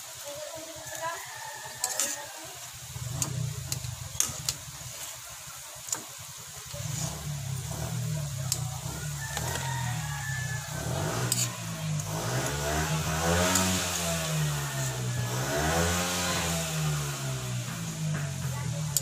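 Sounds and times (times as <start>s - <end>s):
metal spatula scraping a wok: 0.9s - 5.2s, 6.8s - 17.9s
low engine hum: 6.7s - 19.0s.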